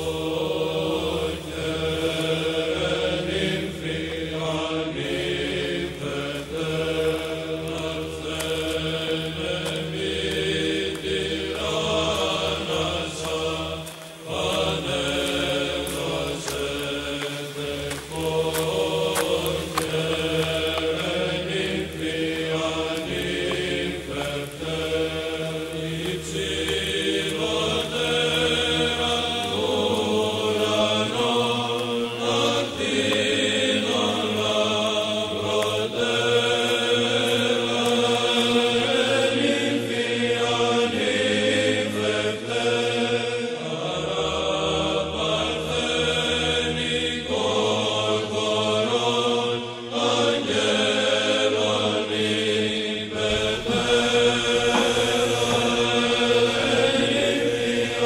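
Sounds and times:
voices chanting slow melody: 0.0s - 58.0s
sustained low drone: 53.2s - 58.0s.

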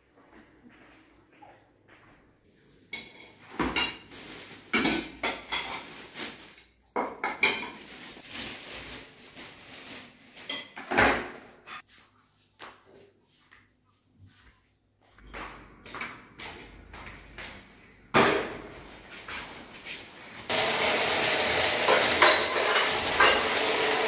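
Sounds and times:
ceramic dishes clinking: 21.9s - 23.7s.

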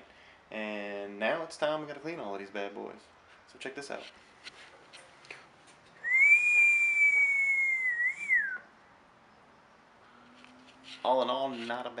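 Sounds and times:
person whistling a long note: 6.0s - 8.7s.

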